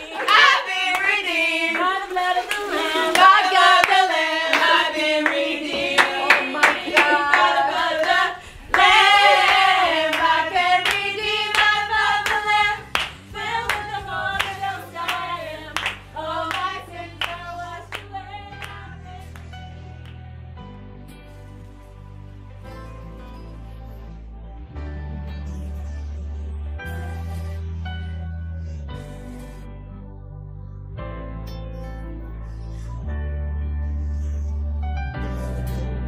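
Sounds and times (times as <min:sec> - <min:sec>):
women singing a worship song: 0:00.0 - 0:19.7
sharp hand claps: 0:03.1 - 0:18.8.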